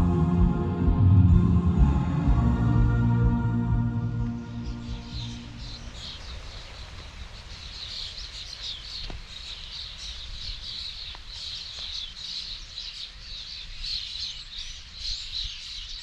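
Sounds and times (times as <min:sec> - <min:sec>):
flock of small birds chirping: 0:04.6 - 0:16.0.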